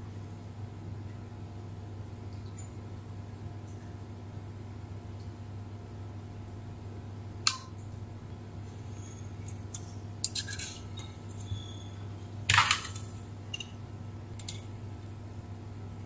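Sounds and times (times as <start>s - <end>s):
steady low hum: 0.0s - 16.0s
metal clicks and scrapes: 9.6s - 11.5s.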